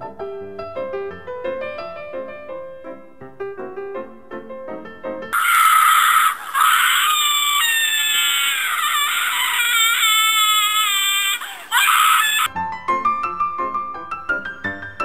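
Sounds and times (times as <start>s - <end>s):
high-pitched wailing cry: 5.4s - 12.5s.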